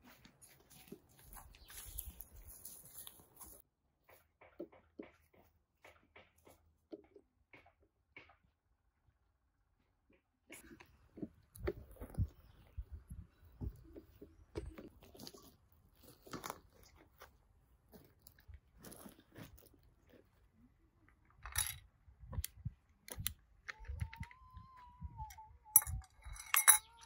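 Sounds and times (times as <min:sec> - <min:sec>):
crunching and clicking: 0:13.6 - 0:17.3.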